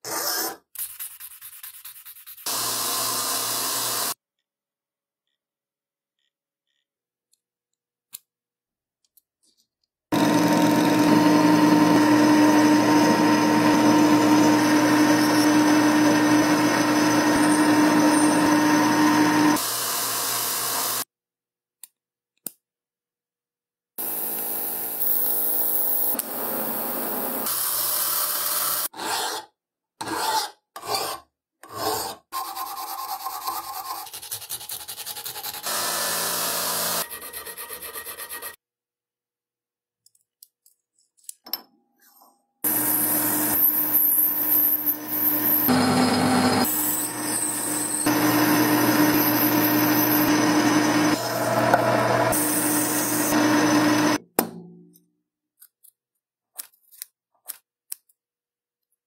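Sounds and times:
metal lathe cutting: 10.2 - 19.6, 42.7 - 54.2.

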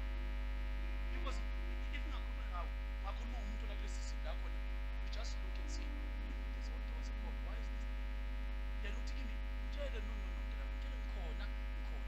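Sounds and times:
electrical hum: 0.0 - 12.0
faint voices murmuring: 1.1 - 4.5, 5.1 - 7.8.

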